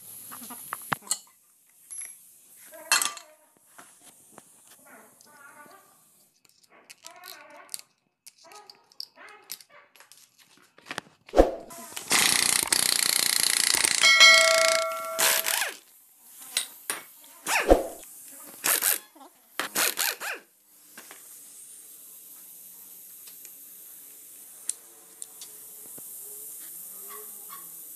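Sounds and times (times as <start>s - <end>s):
pneumatic impact wrench: 11.8s - 15.8s, 18.6s - 19.0s, 19.6s - 20.5s
ringing metallic tone: 14.0s - 15.6s.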